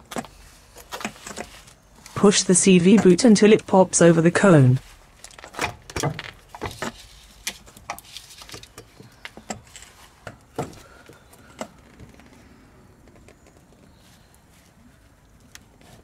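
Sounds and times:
rubber boot clicking and rubbing: 5.2s - 14.8s.

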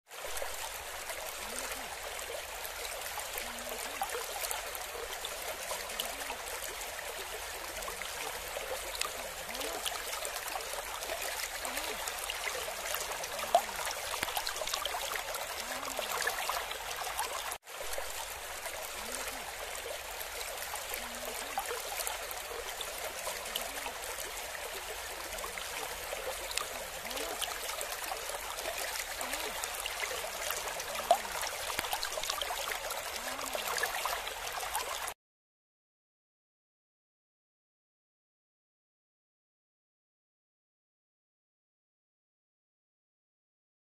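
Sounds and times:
rushing water: 0.1s - 35.2s.

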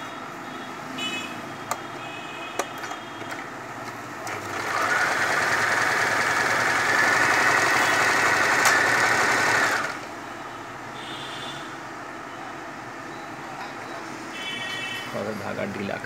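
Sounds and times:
electric sewing machine running: 4.2s - 10.1s.

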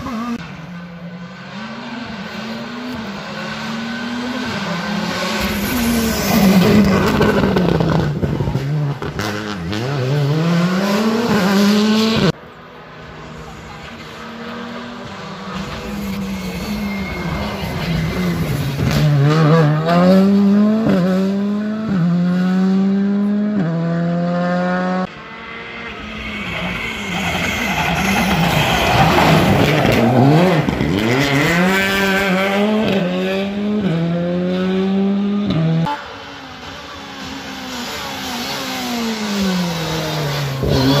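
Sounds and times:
rally car engines accelerating: 0.0s - 41.0s.

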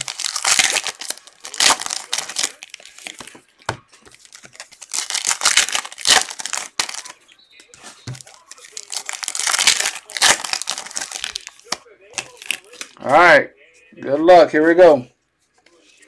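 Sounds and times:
foil wrapper crinkling: 0.0s - 3.4s, 4.0s - 7.2s, 7.8s - 13.0s.

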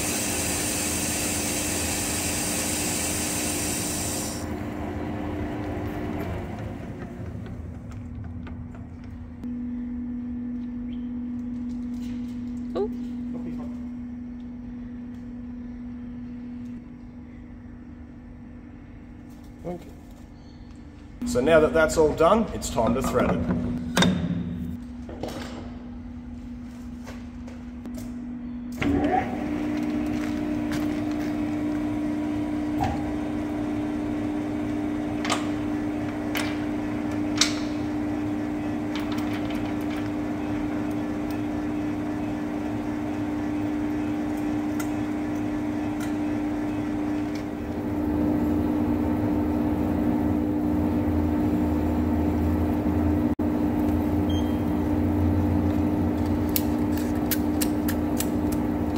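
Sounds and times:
metal lathe humming: 0.0s - 7.0s.

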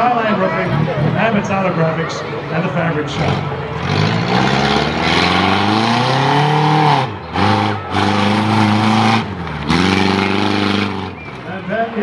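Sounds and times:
car engine revving: 3.0s - 11.7s.

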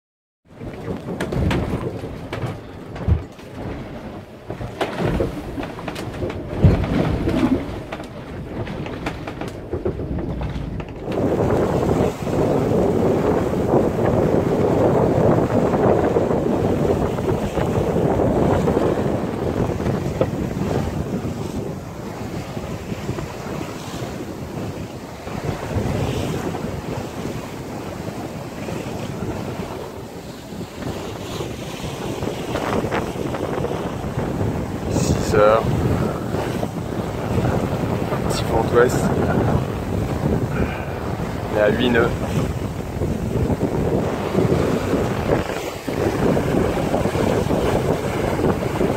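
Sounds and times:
water rumbling against hull: 0.4s - 48.9s
wind on microphone: 0.5s - 48.9s
knocks and thumps: 0.6s - 11.4s.

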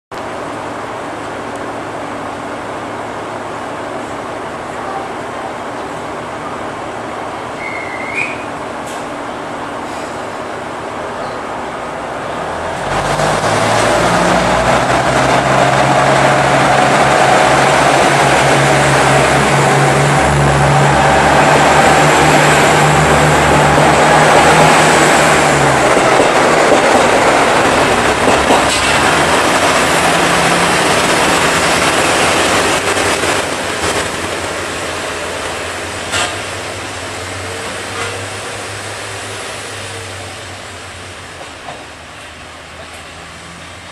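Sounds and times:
diesel train engine droning: 0.2s - 43.9s
train rumble: 0.2s - 43.9s
train wheels clicking: 12.8s - 35.1s, 36.0s - 36.6s.

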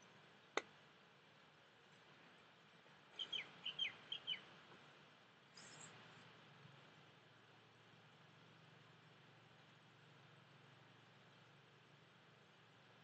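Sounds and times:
bird chirping: 3.1s - 4.6s, 5.5s - 6.0s.

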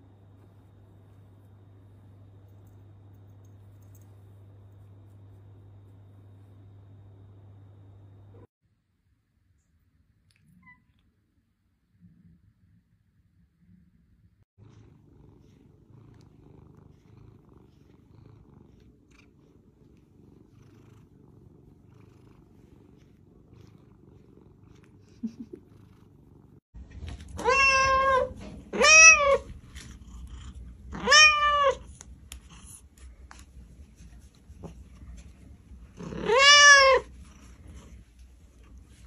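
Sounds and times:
cat purring: 14.6s - 26.6s, 29.6s - 30.9s, 36.9s - 39.0s
cat meowing: 27.4s - 29.5s, 30.9s - 31.8s, 36.0s - 37.1s.

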